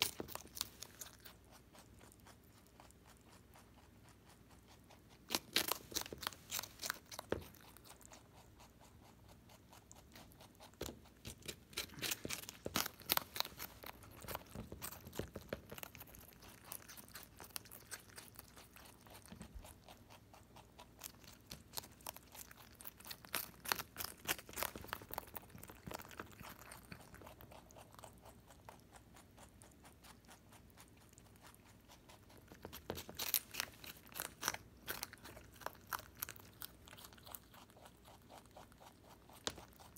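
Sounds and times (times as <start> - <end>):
rabbit crunching cabbage: 0.0 - 39.9.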